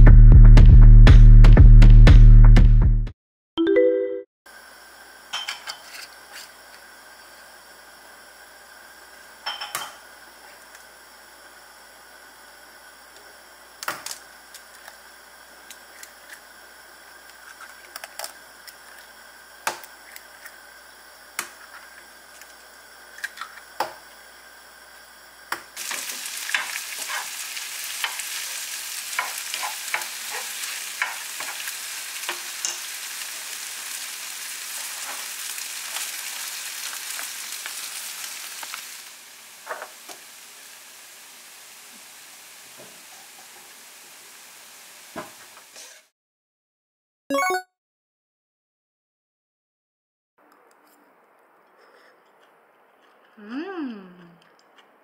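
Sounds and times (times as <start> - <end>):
food sizzling in a pan: 4.5 - 46.1.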